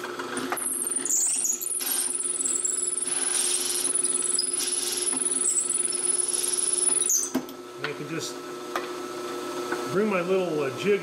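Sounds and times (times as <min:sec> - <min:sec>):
drill press motor hum and whine: 0:00.0 - 0:10.8.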